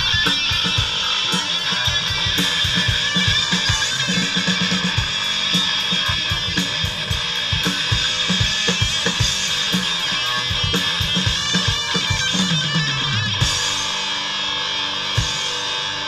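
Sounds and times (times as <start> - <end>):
electric guitars: 0.0 - 16.0.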